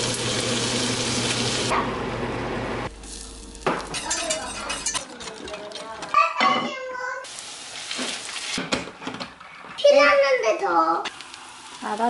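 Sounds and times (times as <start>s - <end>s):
meat sizzling in a pot: 0.0s - 1.7s, 2.9s - 4.4s, 7.2s - 12.0s.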